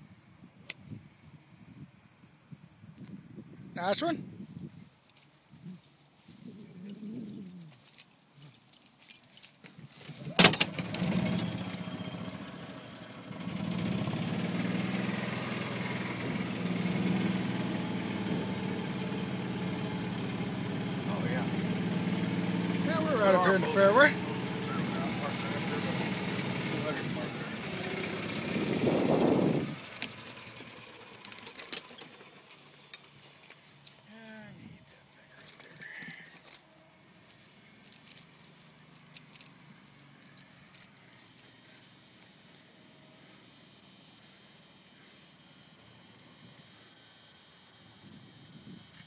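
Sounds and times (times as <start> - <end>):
golf cart engine running: 10.3 - 34.2, 35.4 - 49.0
clicks and rattles: 29.9 - 34.0, 37.8 - 39.6
small clicks: 37.8 - 39.6, 40.2 - 41.5.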